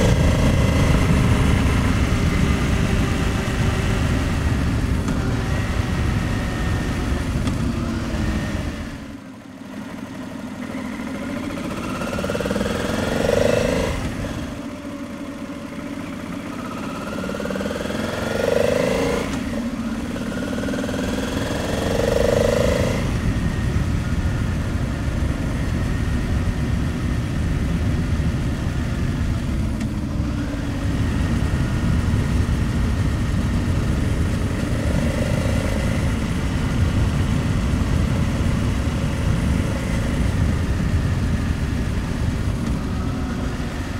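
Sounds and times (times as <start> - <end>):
wind on microphone: 0.0 - 9.1, 20.9 - 43.9
motorcycle engine running: 0.0 - 43.9.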